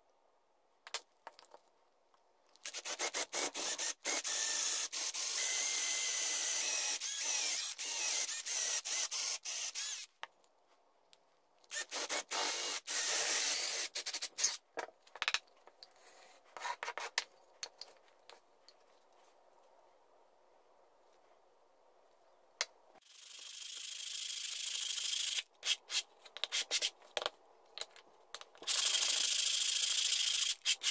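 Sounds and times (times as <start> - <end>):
drill boring into wood: 2.7 - 10.1, 11.7 - 14.5.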